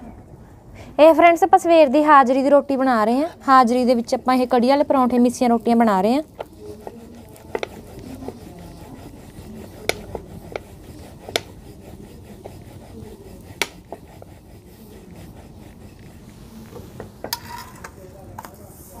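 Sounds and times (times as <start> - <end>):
rolling pin rubbing on dough: 2.3 - 17.4.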